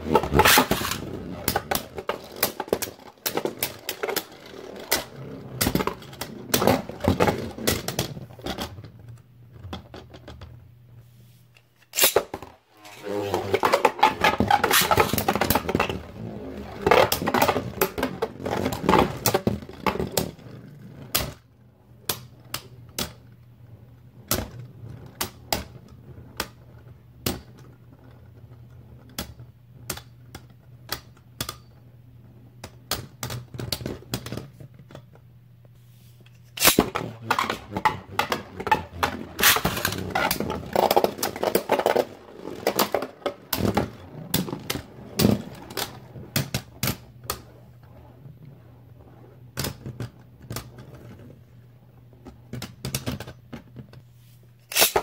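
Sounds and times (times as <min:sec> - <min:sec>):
spinning tops clacking: 0:36.5 - 0:37.6.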